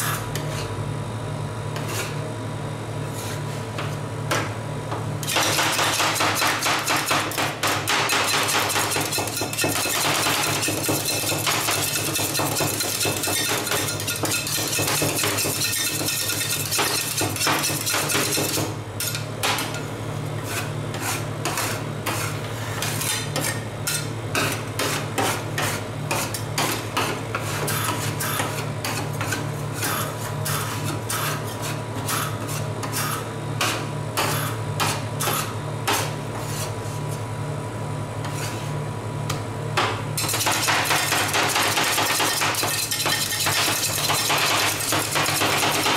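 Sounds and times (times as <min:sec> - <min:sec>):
metal spatulas chopping on steel: 0:05.2 - 0:19.8, 0:40.2 - 0:45.9.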